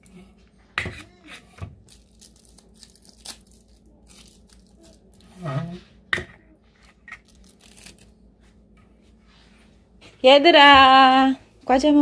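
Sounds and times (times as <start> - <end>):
foil seals tearing: 1.8 - 5.3, 7.2 - 8.1
plastic crinkling: 1.8 - 5.4, 6.8 - 8.2.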